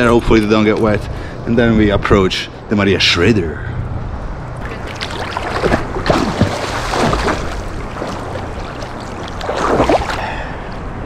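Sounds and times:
wading through splashing seawater: 4.6s - 10.7s.

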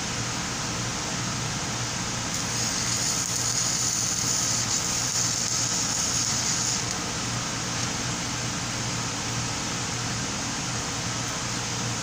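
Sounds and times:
steady low hum: 0.0s - 12.0s
welding arc crackling and hissing: 2.3s - 7.1s.

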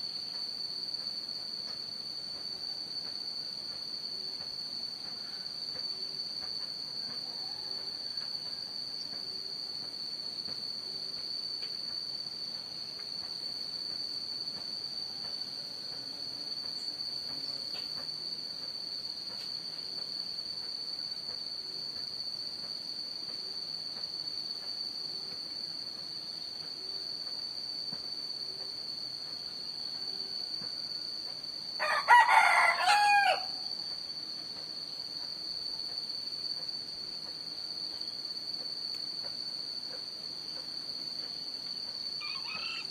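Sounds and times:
insects droning: 0.0s - 42.9s
rooster crowing: 7.0s - 8.8s, 31.8s - 33.7s, 42.2s - 42.9s.

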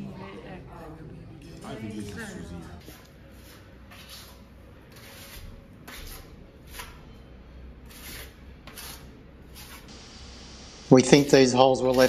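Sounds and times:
putty knife scraping plaster: 3.4s - 7.0s, 7.8s - 9.9s.

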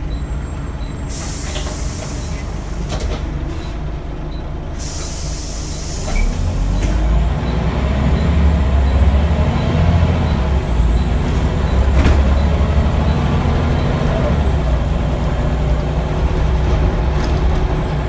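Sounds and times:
bus diesel engine pulling away: 0.0s - 18.0s
air brake hiss: 1.1s - 3.8s, 4.8s - 7.0s.

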